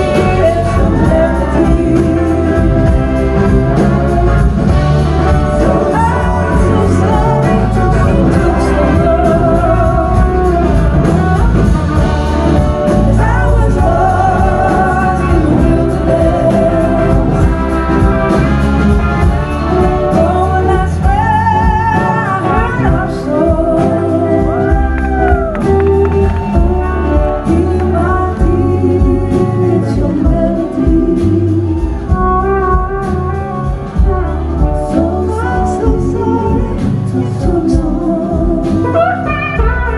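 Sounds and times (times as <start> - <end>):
woman singing: 0.0 - 4.3, 5.1 - 11.4, 12.4 - 18.4, 19.7 - 32.4, 34.0 - 39.9
bass guitar: 0.0 - 39.9
drums: 0.0 - 39.9
electric guitars: 0.0 - 39.9.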